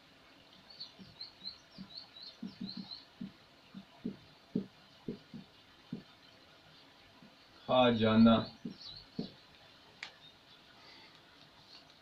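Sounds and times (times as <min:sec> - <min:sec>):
marker writing on a whiteboard: 0:01.8 - 0:06.1.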